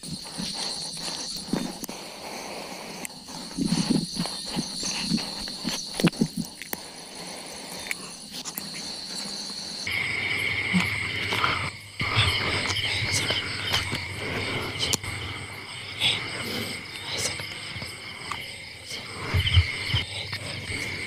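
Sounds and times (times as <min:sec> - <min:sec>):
insect chorus trilling: 0:00.0 - 0:21.0.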